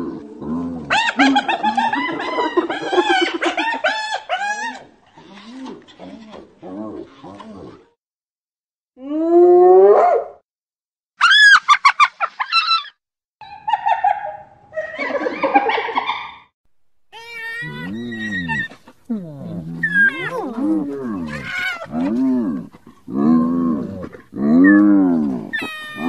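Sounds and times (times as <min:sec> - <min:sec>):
hyenas calling: 0:17.2 - 0:26.0.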